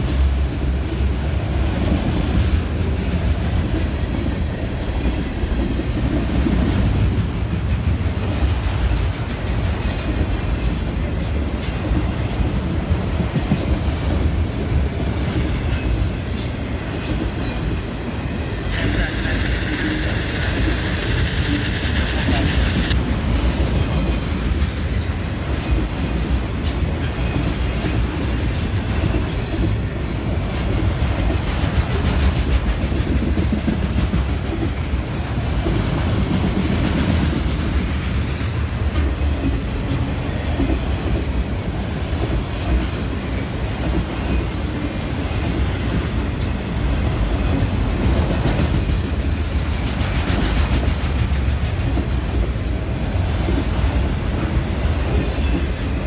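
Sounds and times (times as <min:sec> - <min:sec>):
low train rumble: 0:00.0 - 0:56.0
train wheels clattering on rails: 0:00.0 - 0:56.0
wheel squeals: 0:51.4 - 0:52.8.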